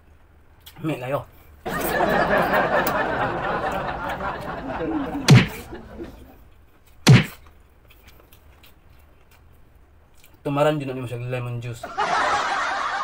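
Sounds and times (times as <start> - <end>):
sharp thumps: 5.3 - 5.8, 7.0 - 7.4.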